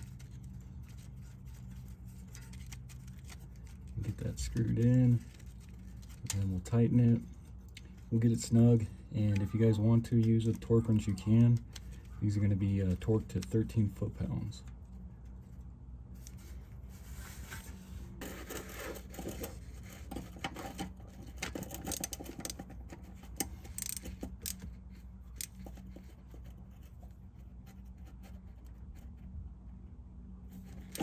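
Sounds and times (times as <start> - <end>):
ratchet clicking and scraping: 20.5 - 22.6, 23.3 - 24.7.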